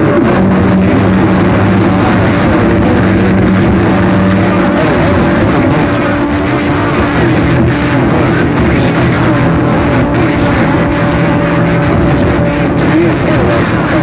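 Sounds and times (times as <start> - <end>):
low humming tones: 0.0 - 14.0
radio static rush: 0.0 - 14.0.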